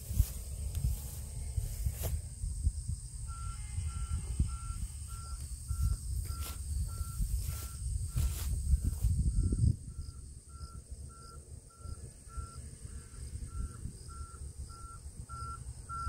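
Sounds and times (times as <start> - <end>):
excavator warning alarm beeping: 3.2 - 16.0.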